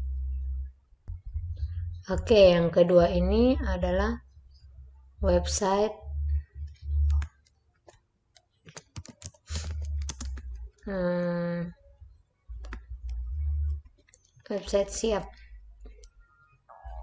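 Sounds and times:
low rumble: 0.0 - 7.3, 9.6 - 13.8
keyboard key clicks: 8.7 - 10.4.

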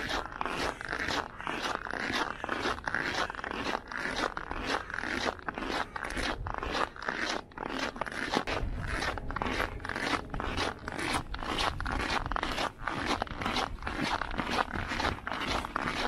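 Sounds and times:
footsteps crunching on snow: 0.0 - 16.0
low rumble: 8.4 - 15.8.

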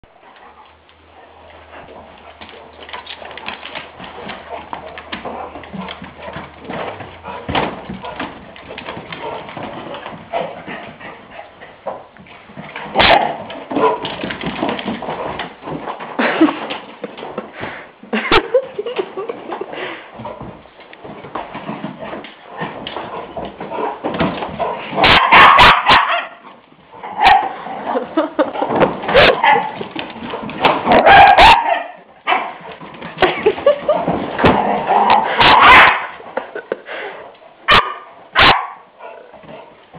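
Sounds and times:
puppy barking: 13.0 - 14.0, 25.0 - 26.4, 27.1 - 27.6, 29.1 - 29.8, 31.0 - 32.6, 35.3 - 36.2, 37.7 - 39.3.

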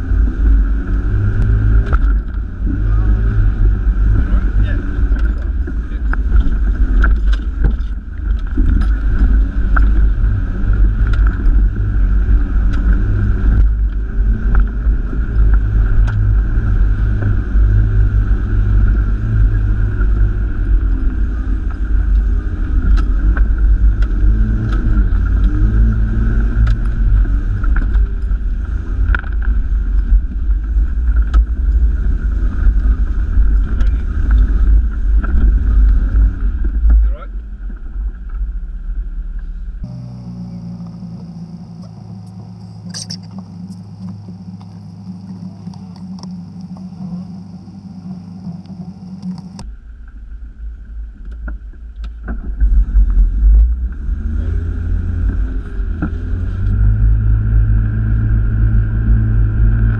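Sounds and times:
engine and road rumble: 0.0 - 59.9
sharp clicks and rattles: 41.8 - 47.8.

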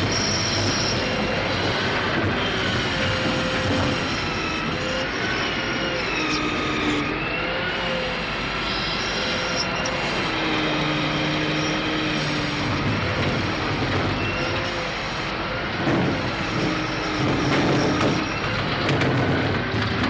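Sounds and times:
crane mechanical whining: 0.0 - 20.0.

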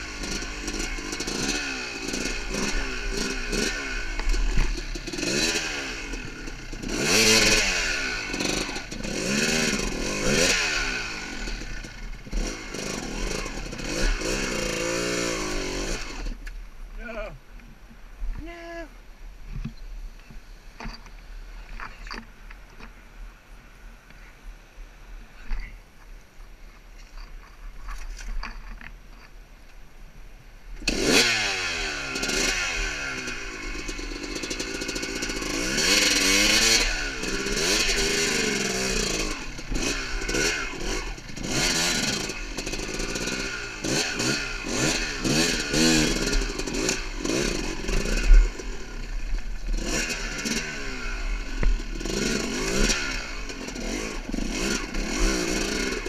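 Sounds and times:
dirt bike engine revving: 0.0 - 16.4, 30.8 - 56.0.

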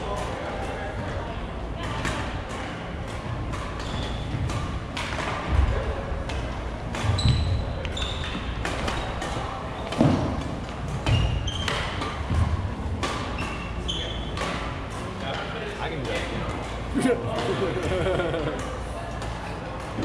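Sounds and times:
murmur of chatter: 0.0 - 20.0
racket hitting shuttlecock: 1.9 - 5.7, 6.3 - 15.0
sneaker squeaks on wooden floor: 3.8 - 4.5, 7.0 - 10.0, 11.0 - 12.2, 13.2 - 14.7.

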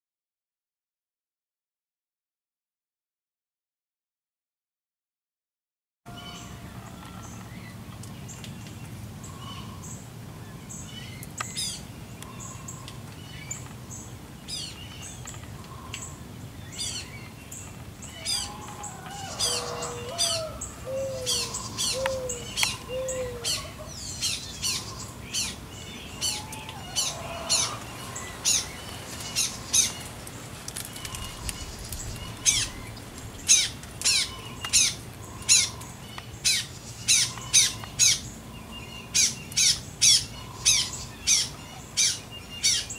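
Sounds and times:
birds chirping: 6.1 - 42.9.

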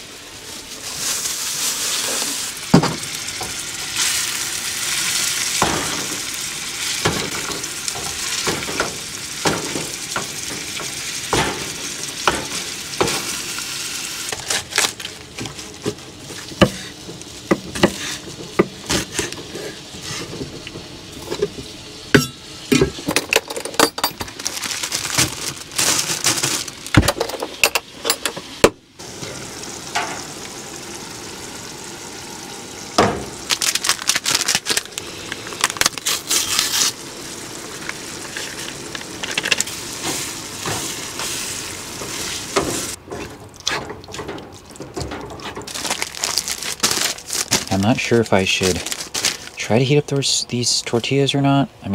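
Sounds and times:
meat sizzling in a frying pan: 0.0 - 23.1, 28.5 - 43.0.

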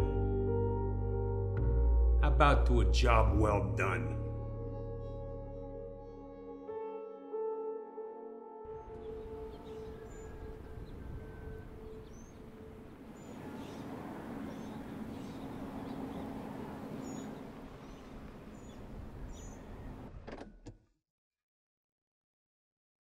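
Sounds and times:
birds chirping: 8.8 - 20.2.

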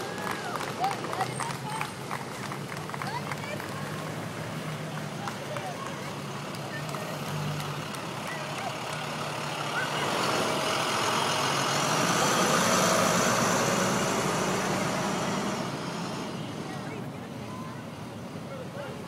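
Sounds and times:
bus pulling away: 0.0 - 19.0
truck passing: 0.0 - 19.0.

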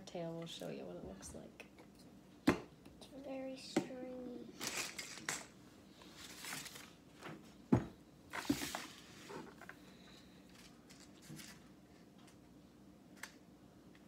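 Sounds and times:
paper rustles: 6.1 - 7.0.

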